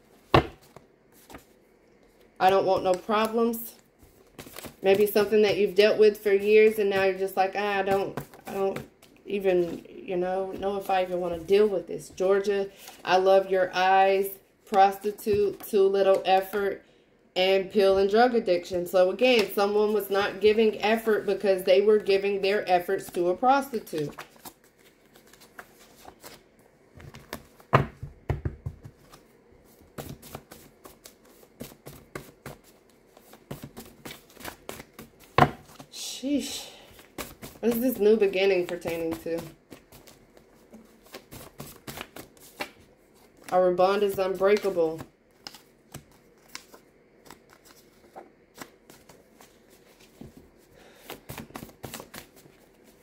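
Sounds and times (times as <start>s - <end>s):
cards being shuffled: 4.0s - 5.4s, 23.0s - 26.4s, 27.0s - 35.9s, 37.0s - 53.0s.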